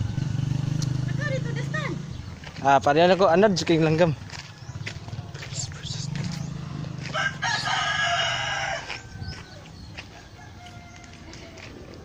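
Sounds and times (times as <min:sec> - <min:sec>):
steady low hum: 0:05.0 - 0:10.0
rooster crowing: 0:06.6 - 0:11.6.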